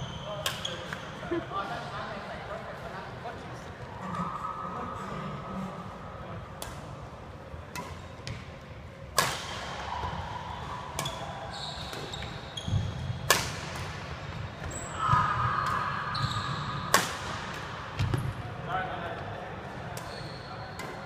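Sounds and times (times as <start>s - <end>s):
sneakers squeaking on wooden floor: 11.0s - 13.2s, 14.6s - 16.9s, 20.1s - 21.0s
rackets hitting shuttlecocks: 12.7s - 14.0s.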